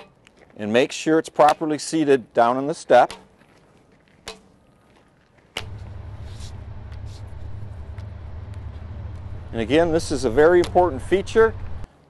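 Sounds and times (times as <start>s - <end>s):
low machinery rumble: 5.6s - 11.9s.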